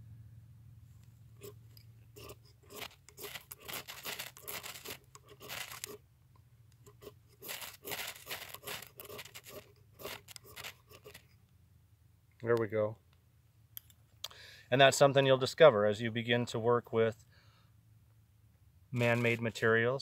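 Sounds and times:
dry grasses rustling and tearing: 2.2s - 6.0s, 7.4s - 11.2s, 19.0s - 19.6s.

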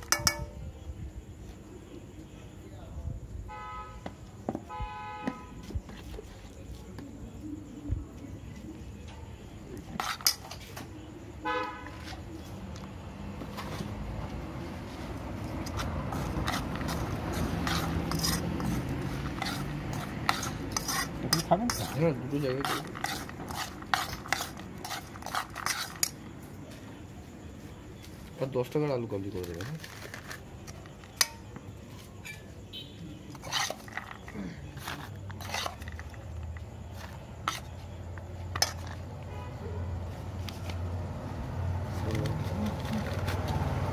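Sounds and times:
spoon clinking metal bowl: 0.0s - 0.7s
low rumble of street traffic: 0.0s - 43.9s
utensil scraping metal bowl: 9.8s - 10.8s, 15.6s - 26.3s, 33.2s - 39.1s.

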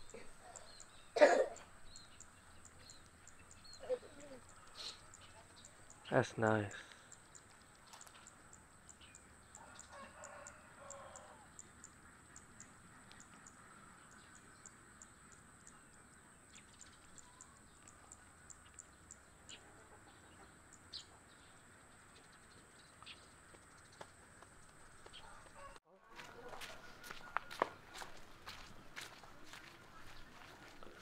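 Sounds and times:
faint high ticks: 6.8s - 14.3s
distant chicken calling: 9.4s - 14.8s, 25.0s - 29.7s.

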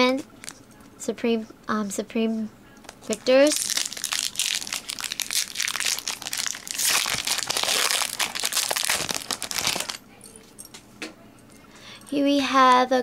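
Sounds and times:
foil wrapper crinkling: 2.8s - 10.0s.

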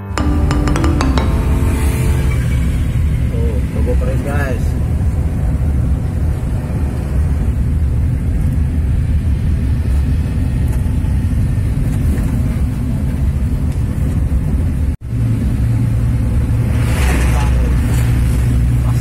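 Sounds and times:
vehicle engine and road rumble: 3.8s - 19.0s.

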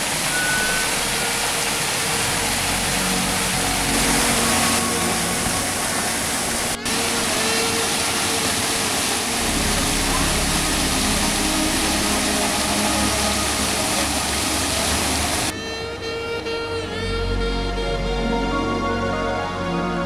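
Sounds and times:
fountain and waterfall splashing: 0.0s - 15.6s
faint voices: 0.0s - 19.0s.

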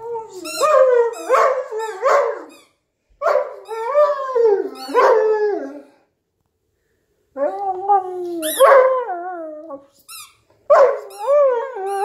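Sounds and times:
rubber squeaky toy squeaking: 0.4s - 2.7s, 8.4s - 8.7s, 10.0s - 10.4s.

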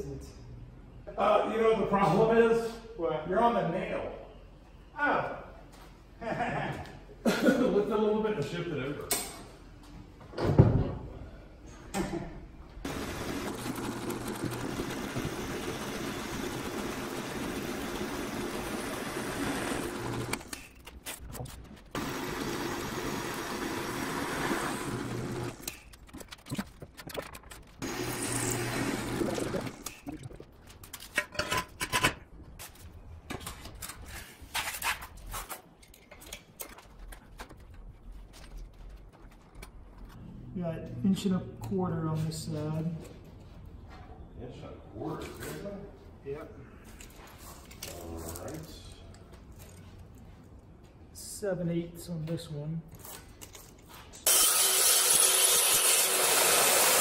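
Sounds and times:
drill press boring into steel: 12.9s - 20.5s, 22.0s - 25.6s, 27.8s - 29.8s, 54.3s - 57.0s.

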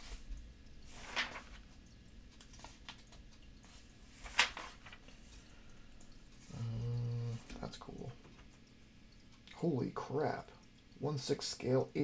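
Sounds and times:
catalog page turning: 0.9s - 1.7s, 2.4s - 3.2s, 4.1s - 5.3s.

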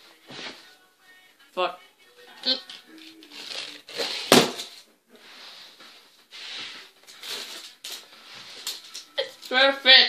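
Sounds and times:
rustling and shuffling: 0.0s - 1.0s, 2.7s - 9.5s.

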